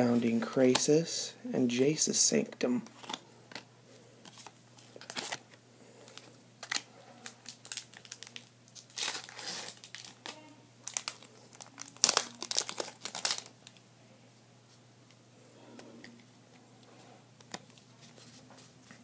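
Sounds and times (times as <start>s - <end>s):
foil wrapper crinkling: 6.1s - 13.8s.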